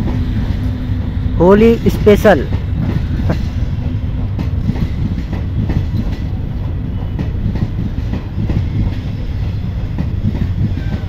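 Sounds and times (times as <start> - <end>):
train wheels clattering over rail joints: 2.3 - 11.0.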